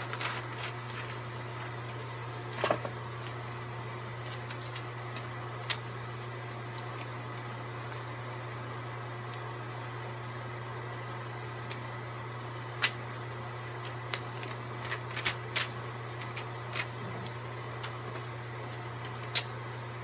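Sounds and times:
plastic sheets crinkling: 0.0 - 1.9, 13.8 - 17.4
steady low hum: 0.0 - 20.0.

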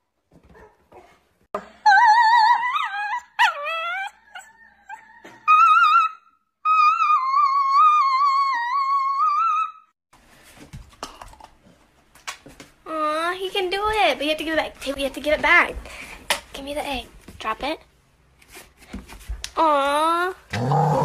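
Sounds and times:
dog howling: 1.8 - 9.8.

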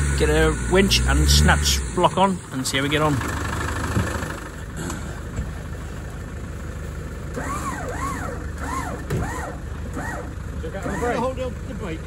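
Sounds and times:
car engine idling: 0.0 - 12.0
high rising and falling tone: 7.3 - 10.3.

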